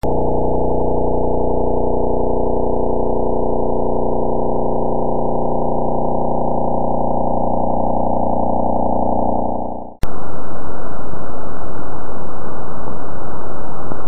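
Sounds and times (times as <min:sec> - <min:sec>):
fast buzzing drone: 0:00.0 - 0:10.0.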